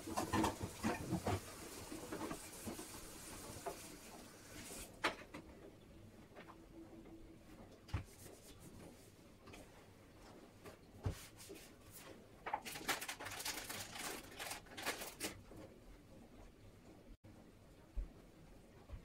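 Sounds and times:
cloth rubbing at sink: 7.9 - 12.3.

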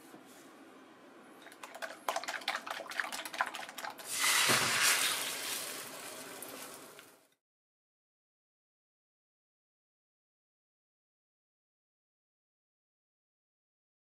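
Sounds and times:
egg sizzling in frying pan: 4.0 - 7.3.

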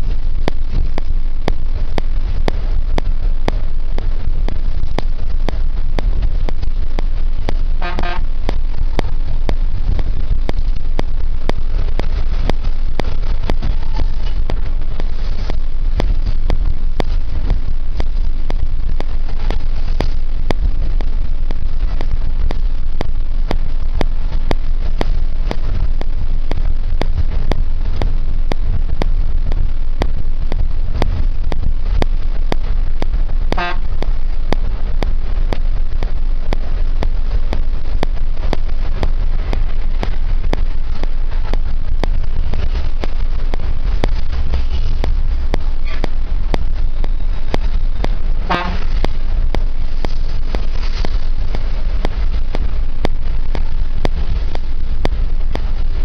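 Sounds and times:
vehicle engine and road noise: 0.0 - 56.0
horn toot: 7.8 - 8.3, 33.5 - 34.0, 48.5 - 49.0.

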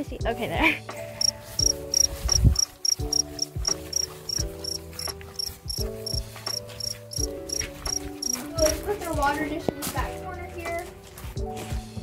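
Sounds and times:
crickets chirping: 1.2 - 8.4.

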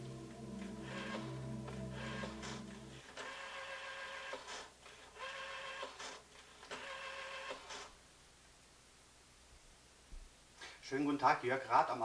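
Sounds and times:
rotary telephone dial whirring: 2.0 - 7.9.

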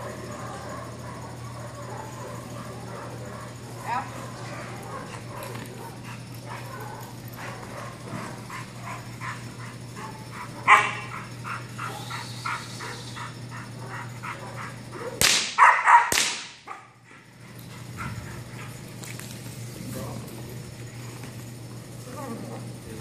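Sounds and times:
puppy barking rapidly: 10.0 - 17.0.

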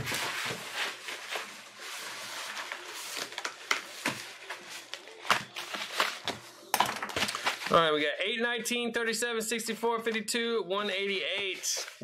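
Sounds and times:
paper envelopes rustling: 0.0 - 7.9, 11.0 - 12.0.

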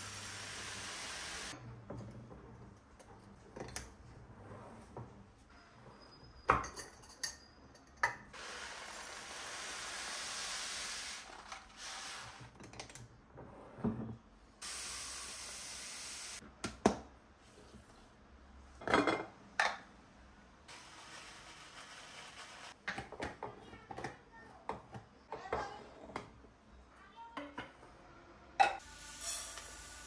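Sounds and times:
dishes clinking and knocking: 6.4 - 8.3, 18.8 - 19.9.

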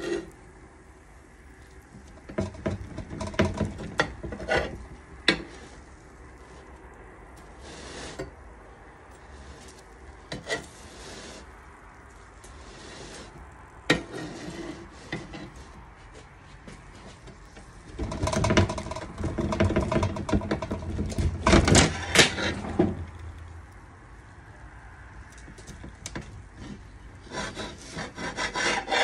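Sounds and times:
knife scraping pizza pan: 0.0 - 0.4, 2.4 - 5.8, 10.3 - 11.4, 12.6 - 17.2, 26.6 - 29.0.

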